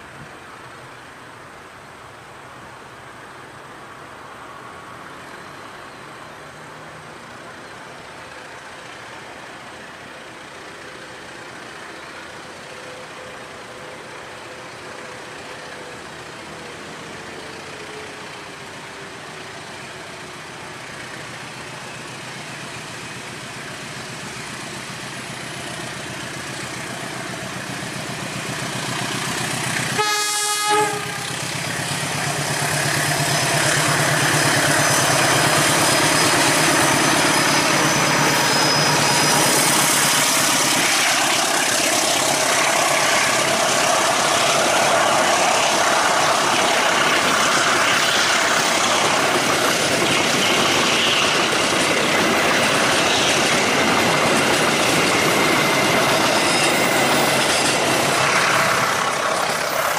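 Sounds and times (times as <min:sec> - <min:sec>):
diesel locomotive running: 0:07.1 - 0:59.9
train horn blast: 0:30.0 - 0:31.4.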